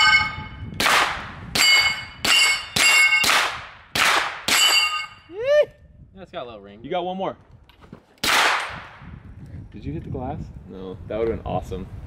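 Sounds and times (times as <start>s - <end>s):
metallic ring of steel target: 0.0s - 0.8s, 1.5s - 3.5s, 4.5s - 5.3s
gunshots: 0.8s - 5.0s, 8.2s - 9.0s.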